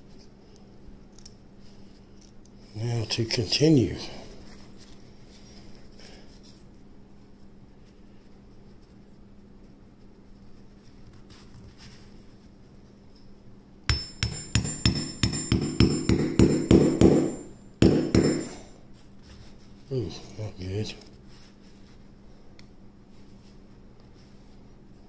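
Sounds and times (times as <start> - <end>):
hammer tapping metal pin: 13.9 - 18.6.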